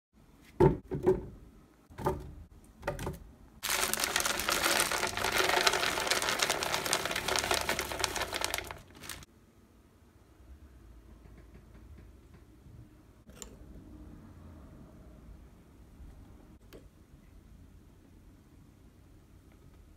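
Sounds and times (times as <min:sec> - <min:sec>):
blueberries rattling into jar: 0:03.6 - 0:09.2.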